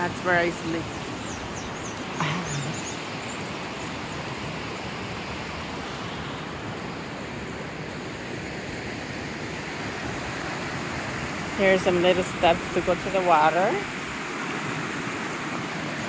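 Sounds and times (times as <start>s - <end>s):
mountain stream rushing: 0.0s - 16.0s.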